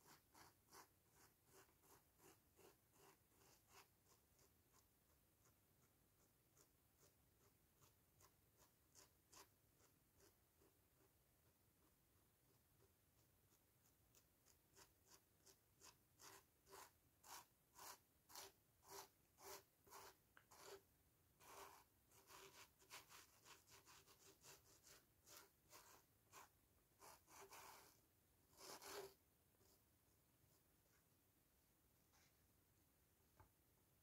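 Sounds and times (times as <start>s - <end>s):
sponge dabbing: 0.0s - 29.8s.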